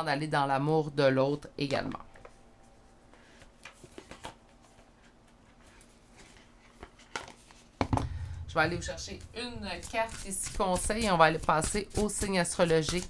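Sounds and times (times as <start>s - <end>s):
cards tapping and rustling: 3.4s - 4.5s, 9.9s - 13.0s.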